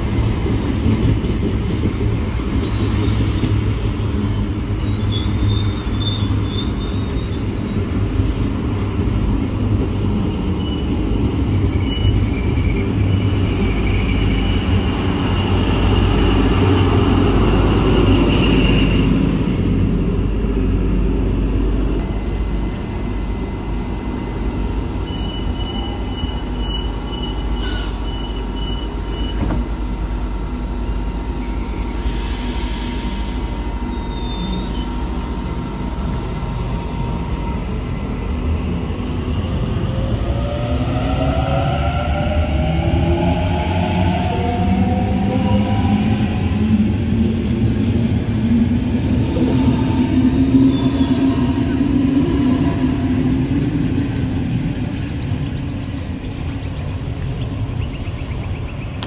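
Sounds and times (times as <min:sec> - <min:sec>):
train wheels rumbling on rail: 0:00.0 - 0:59.0
high wheel squeal: 0:04.8 - 0:08.5, 0:10.6 - 0:17.0, 0:24.2 - 0:29.6, 0:31.4 - 0:39.7
electric train humming with whine: 0:21.8 - 0:59.0.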